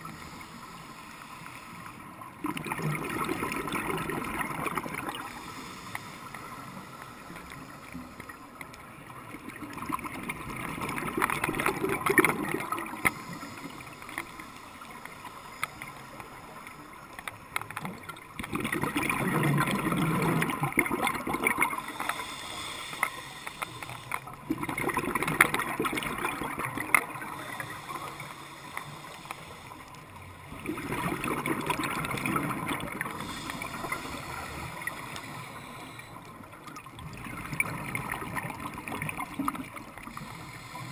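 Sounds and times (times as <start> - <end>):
exhaled bubbles underwater: 2.1 - 5.6, 7.4 - 14.3, 17.6 - 29.0, 30.4 - 40.6.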